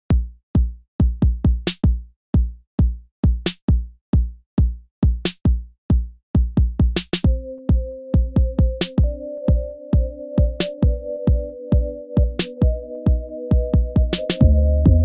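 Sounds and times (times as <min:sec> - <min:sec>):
deep sliding kick drums: 0:12.2 - 0:15.0.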